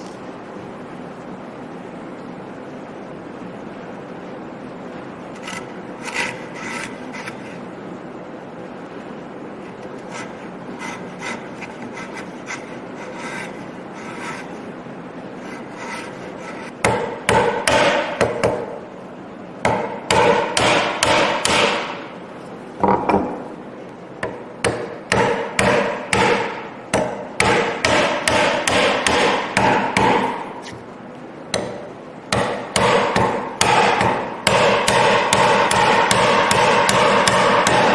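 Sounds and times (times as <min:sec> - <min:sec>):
chisel scraping wood: 0:05.3 - 0:07.6, 0:09.7 - 0:14.6, 0:15.4 - 0:16.8.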